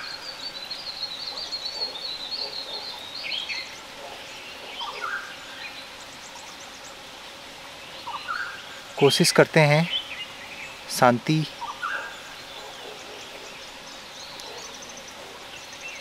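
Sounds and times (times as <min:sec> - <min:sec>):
birds chirping and calling: 0:00.0 - 0:16.0
steady background hiss: 0:00.0 - 0:16.0.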